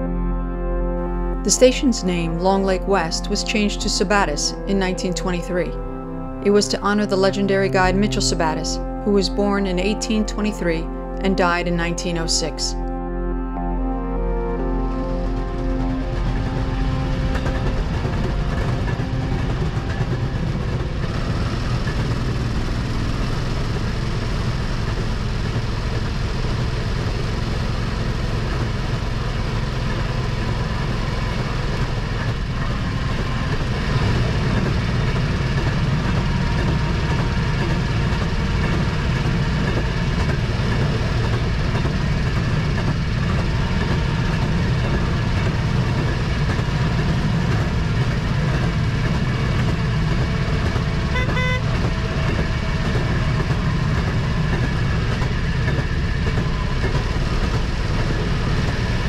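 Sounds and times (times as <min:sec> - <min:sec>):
rail motorcar running on track: 0:01.6 - 0:12.8, 0:13.6 - 0:59.0
high beep: 0:51.2 - 0:51.6.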